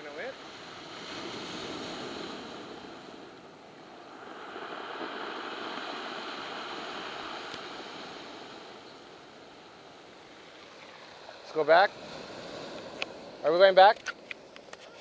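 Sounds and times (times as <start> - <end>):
surf washing over pebbles: 0.0 - 9.3.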